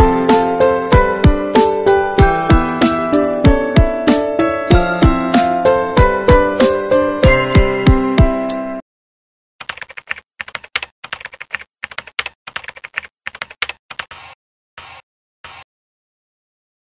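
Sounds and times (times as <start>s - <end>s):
keyboard typing: 9.6s - 15.7s.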